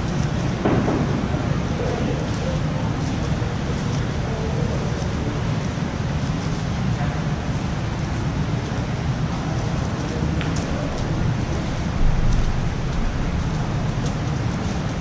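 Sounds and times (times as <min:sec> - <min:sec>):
low room rumble: 0:00.0 - 0:15.0
low thump: 0:00.6 - 0:01.5.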